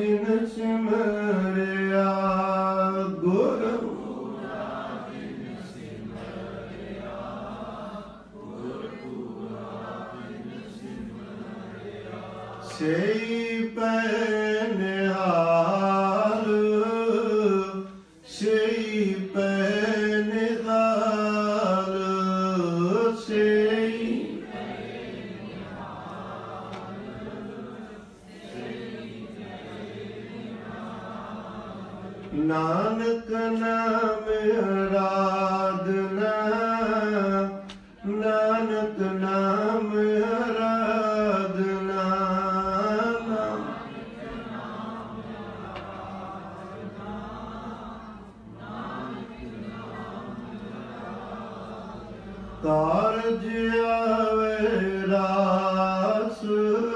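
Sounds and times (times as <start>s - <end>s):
man singing into a microphone: 0.0s - 3.9s, 12.7s - 24.2s, 32.3s - 43.6s, 52.6s - 56.9s
congregation singing back: 0.0s - 56.9s.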